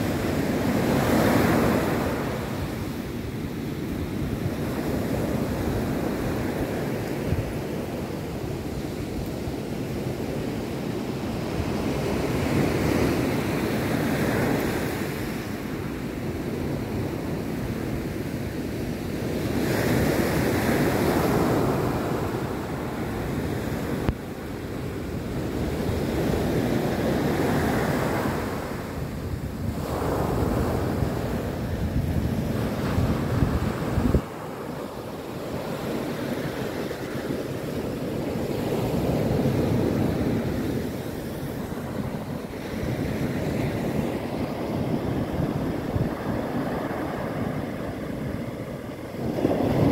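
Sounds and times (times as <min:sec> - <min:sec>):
wind buffeting microphone: 0:19.0 - 0:49.9.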